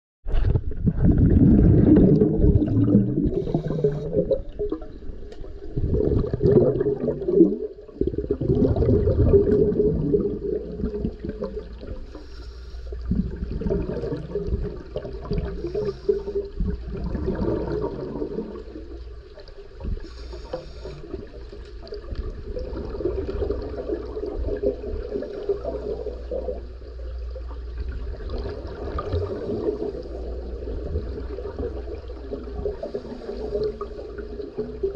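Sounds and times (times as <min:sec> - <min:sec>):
diver's breath bubbling underwater: 0:00.4 - 0:04.9, 0:05.7 - 0:12.1, 0:13.0 - 0:18.9
regulator hiss: 0:03.3 - 0:04.2, 0:12.1 - 0:13.0, 0:20.0 - 0:21.1.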